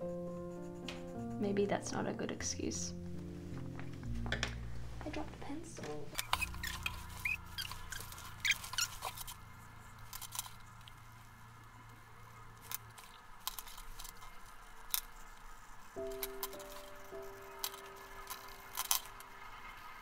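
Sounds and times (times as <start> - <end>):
pencil scratching on paper: 0.0 - 2.3, 6.2 - 11.9.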